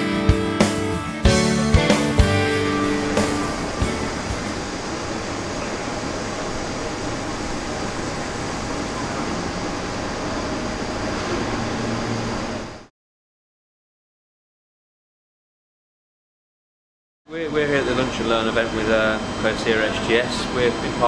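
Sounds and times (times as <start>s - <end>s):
machine hum and hiss: 1.8s - 12.9s, 17.3s - 21.0s.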